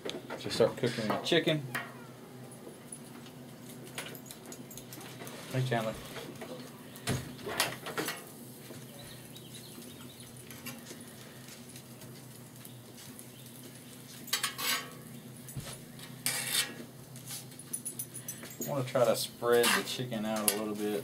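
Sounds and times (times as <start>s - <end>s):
metal spatula scraping griddle: 14.3s - 15.0s, 16.2s - 17.4s, 19.5s - 20.8s.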